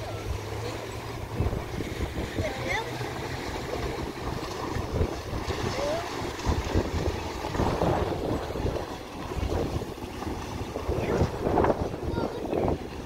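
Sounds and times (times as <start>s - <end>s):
choppy river water: 0.0s - 13.0s
wind buffeting microphone: 0.0s - 13.0s.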